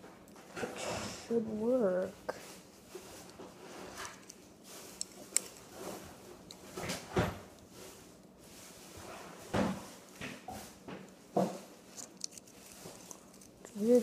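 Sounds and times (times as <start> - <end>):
small plastic and metal parts clicking: 12.0 - 13.8.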